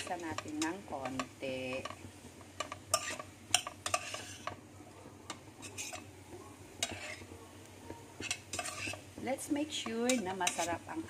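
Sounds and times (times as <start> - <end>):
light sizzle: 0.0 - 11.0
metal spoon scraping a pot: 2.6 - 4.6, 5.6 - 6.1, 6.8 - 7.3, 8.2 - 9.2, 9.8 - 10.9.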